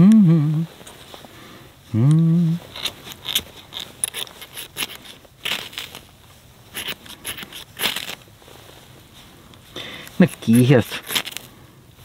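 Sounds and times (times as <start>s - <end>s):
person humming: 0.0s - 0.8s, 1.9s - 2.7s.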